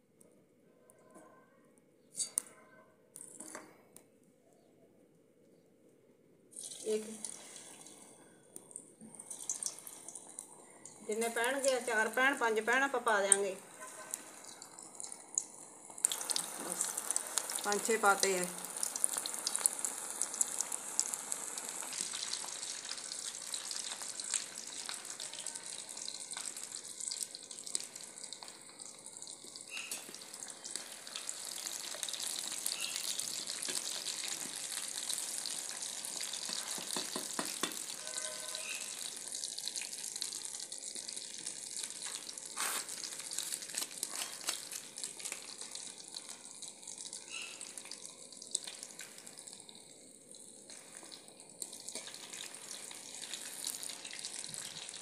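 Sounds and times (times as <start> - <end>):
sizzle of deep-frying oil: 6.6 - 8.0, 8.6 - 55.0.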